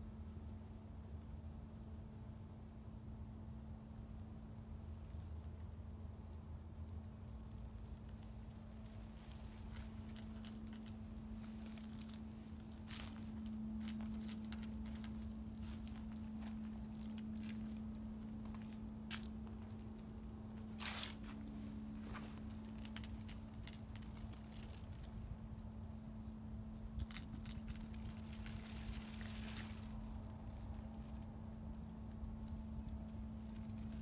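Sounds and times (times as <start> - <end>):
steady low hum: 0.0 - 34.0.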